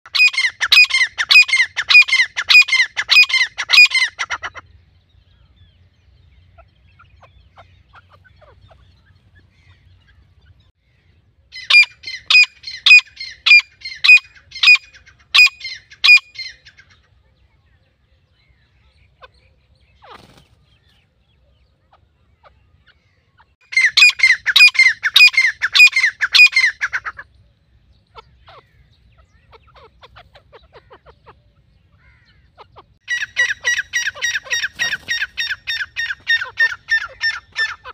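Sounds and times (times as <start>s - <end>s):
francolin harsh calls: 6.4s - 17.1s.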